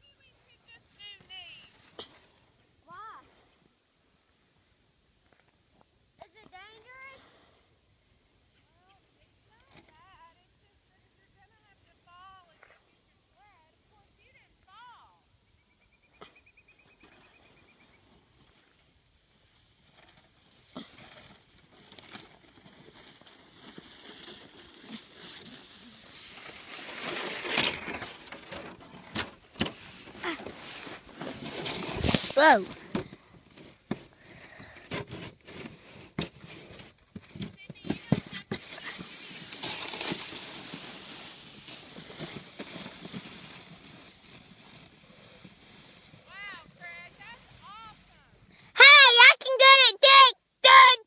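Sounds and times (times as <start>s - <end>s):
plastic sled scraping: 16.9s - 50.9s
footsteps crunching in snow: 22.3s - 28.4s, 29.7s - 32.9s, 38.3s - 48.0s
short rush of noise: 30.6s - 32.8s.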